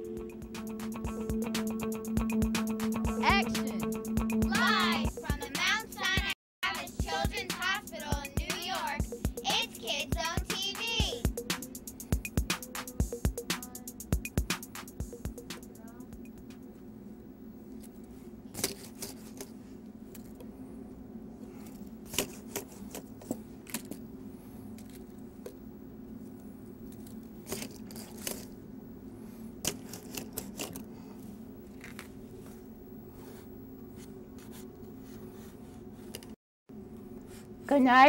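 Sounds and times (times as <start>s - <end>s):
steady low hum: 0.0s - 38.0s
puppets handled with clicks and rustles: 17.7s - 20.5s, 21.4s - 24.0s, 24.7s - 25.6s, 26.2s - 28.6s, 29.6s - 32.6s.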